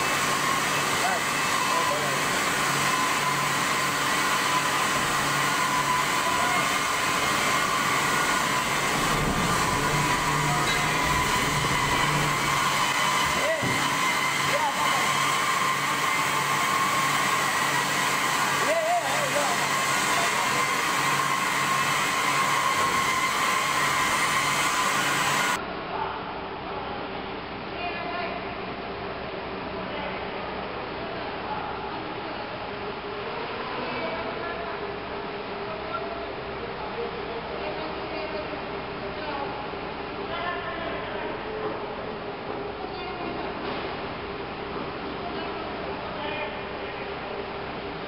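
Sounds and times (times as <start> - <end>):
machine air rush: 0.0 - 25.6
steady high whine: 0.0 - 37.0
low hum: 8.3 - 13.0.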